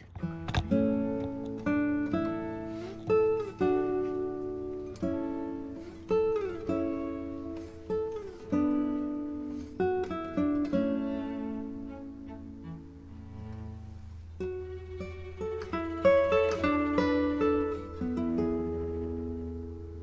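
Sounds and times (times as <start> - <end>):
slow plucked guitar melody: 0.0 - 20.0.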